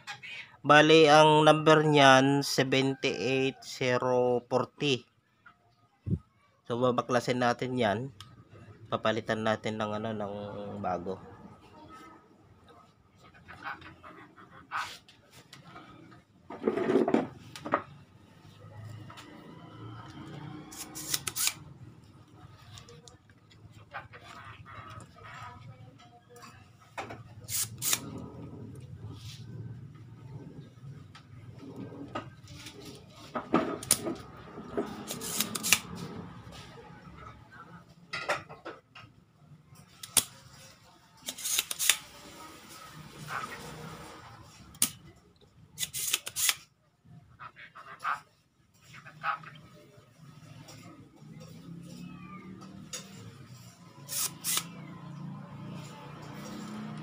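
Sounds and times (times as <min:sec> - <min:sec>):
hands clicking and scraping circuit board: 0:20.7 - 0:21.6, 0:35.0 - 0:36.0, 0:40.0 - 0:40.4
desoldering pump snapping: 0:33.8 - 0:34.0, 0:35.1 - 0:35.9, 0:40.0 - 0:40.4, 0:41.2 - 0:42.0, 0:44.7 - 0:45.0.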